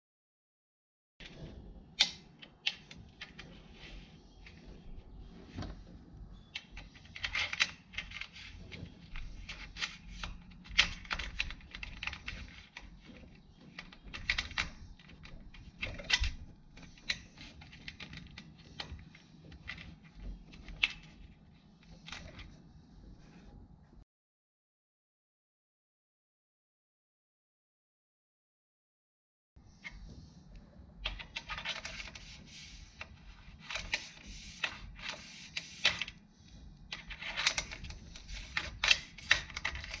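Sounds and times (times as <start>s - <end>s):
plastic parts clicking and tapping: 2.0s - 3.7s, 6.5s - 22.6s, 31.0s - 40.0s.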